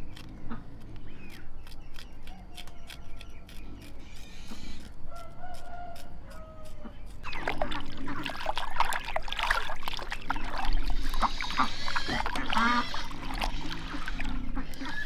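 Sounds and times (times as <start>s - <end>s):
razor blade scraping skin: 0.0s - 7.3s
hands splashing water: 7.2s - 15.0s.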